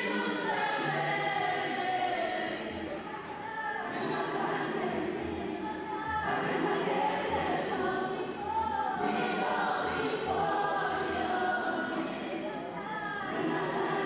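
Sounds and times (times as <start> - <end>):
church choir singing: 0.0 - 14.0.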